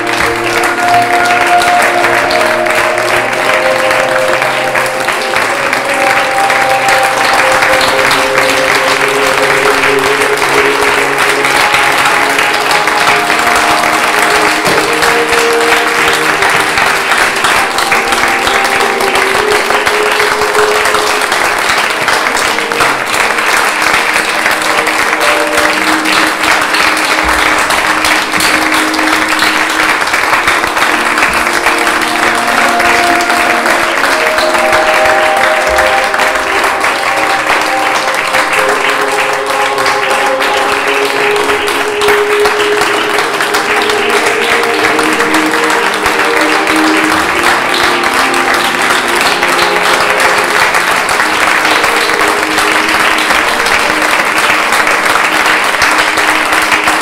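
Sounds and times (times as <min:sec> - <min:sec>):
audience applauding: 0:00.0 - 0:57.0
music of long held notes: 0:00.0 - 0:57.0.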